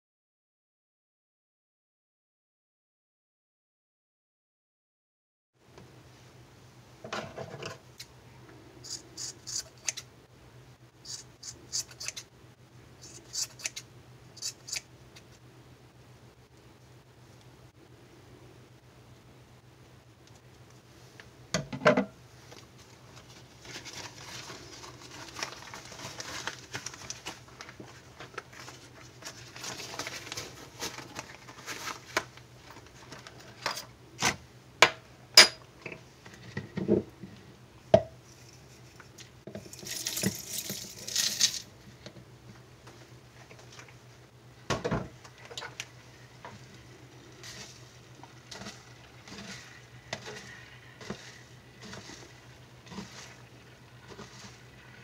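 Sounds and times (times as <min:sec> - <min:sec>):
rustling: 0:22.4 - 0:33.6, 0:45.2 - 0:55.0
spoon stirring in a plastic jug: 0:47.4 - 0:55.0.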